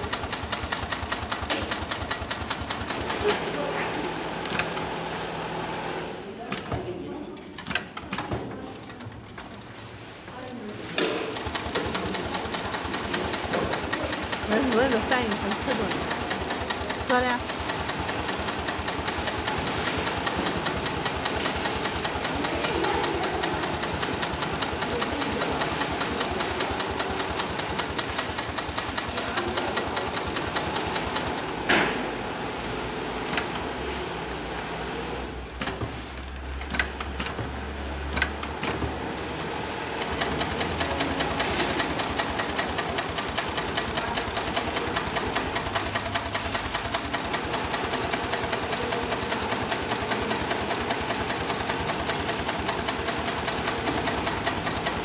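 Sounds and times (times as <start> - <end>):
sewing machine stitching: 0.0 - 6.6, 11.2 - 55.0.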